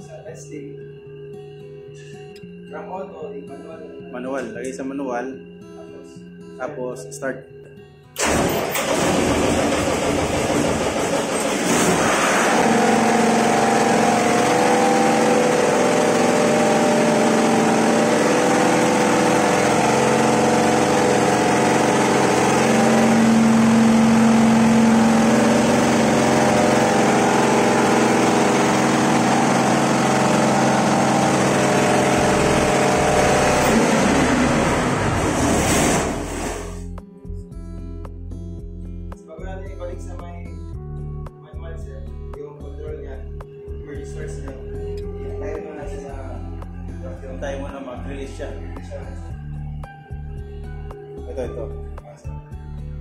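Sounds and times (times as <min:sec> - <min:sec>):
diesel generator engine running: 0:08.2 - 0:37.0.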